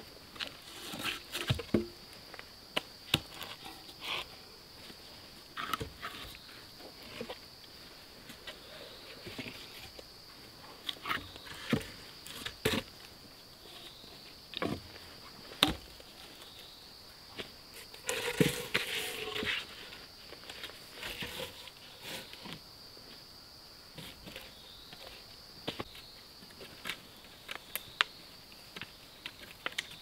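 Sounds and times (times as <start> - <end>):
insects droning: 0.0 - 30.0
wooden logs knocking together: 0.9 - 2.0.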